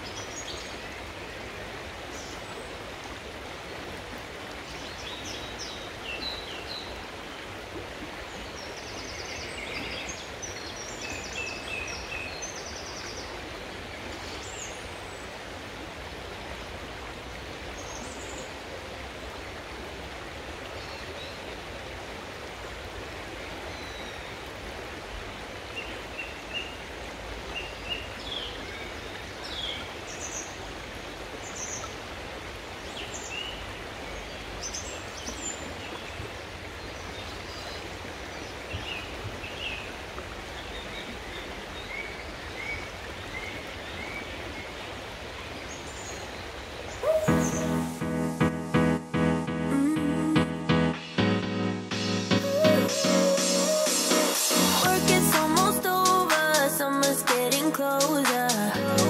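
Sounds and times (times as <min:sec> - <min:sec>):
river water flowing: 0:00.0 - 0:59.0.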